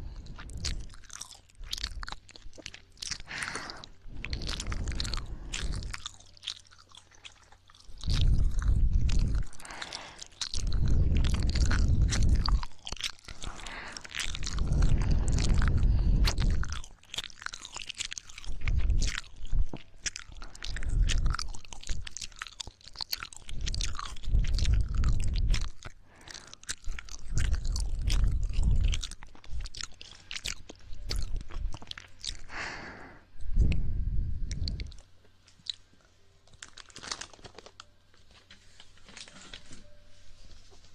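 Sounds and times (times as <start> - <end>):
wet mouth clicks and smacks: 0.1 - 32.6.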